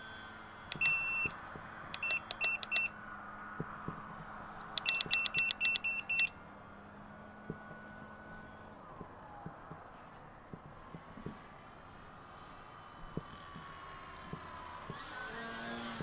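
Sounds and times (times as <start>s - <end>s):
transmitter beeping: 0.7s - 2.9s, 3.6s - 8.8s
electric motor whine: 14.6s - 16.0s.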